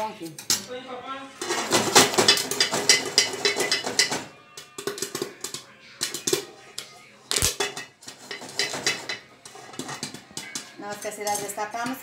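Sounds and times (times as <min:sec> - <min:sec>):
pot and lid clattering: 0:01.4 - 0:06.5, 0:07.3 - 0:12.0
popcorn popping: 0:01.4 - 0:12.0.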